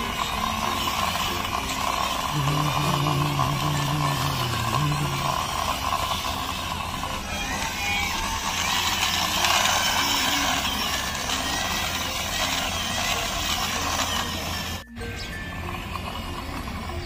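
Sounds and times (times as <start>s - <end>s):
toy wheels rolling over concrete: 0.0s - 17.0s.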